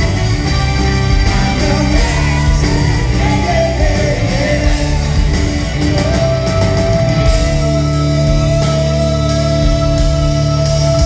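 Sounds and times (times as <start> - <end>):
live rock band playing: 0.0 - 11.0.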